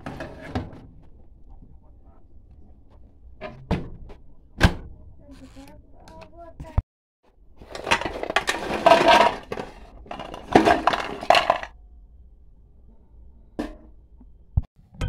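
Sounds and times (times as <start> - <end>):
cookies clattering off metal tray: 7.6 - 11.7.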